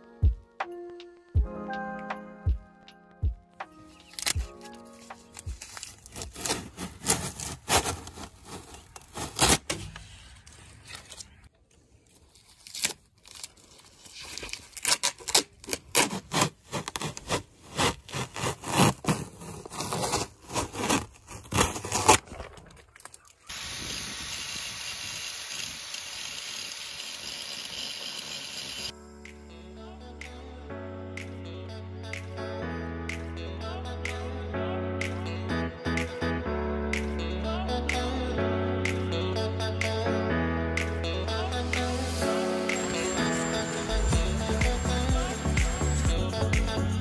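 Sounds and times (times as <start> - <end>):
tape and paper tearing: 3.8 - 11.5, 12.1 - 22.6.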